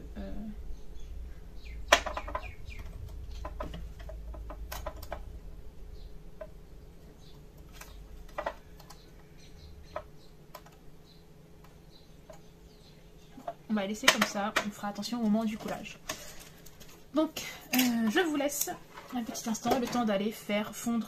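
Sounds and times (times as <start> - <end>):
wooden sticks tapping: 1.9 - 5.3, 7.6 - 9.1, 9.9 - 10.8.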